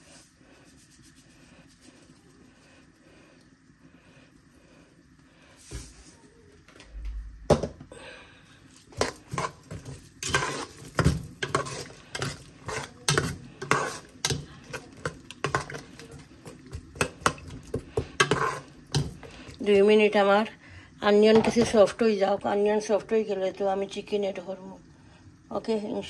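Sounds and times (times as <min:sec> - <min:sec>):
metal spoon scraping a pot: 0:08.8 - 0:19.6.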